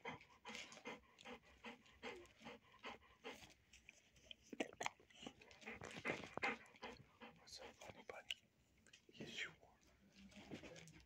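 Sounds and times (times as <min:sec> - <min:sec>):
dog panting softly: 0:00.0 - 0:04.2, 0:05.2 - 0:08.3.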